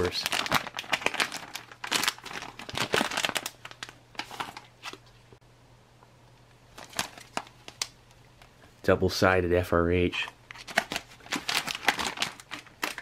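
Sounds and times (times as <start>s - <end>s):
plastic and foil pouches crinkling: 0.0s - 5.1s, 6.7s - 8.0s, 10.2s - 13.0s.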